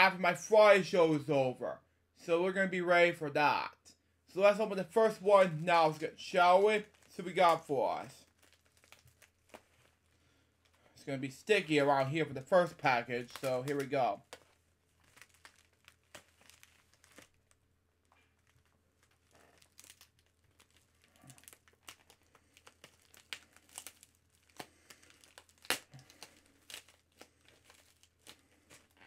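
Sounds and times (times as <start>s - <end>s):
packaging crinkling and tearing: 5.4s - 10.9s, 12.7s - 29.0s.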